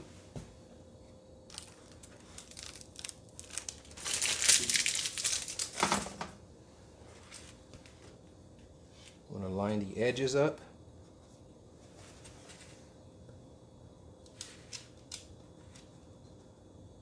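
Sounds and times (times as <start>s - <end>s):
plastic overlay crinkling: 1.5s - 5.9s.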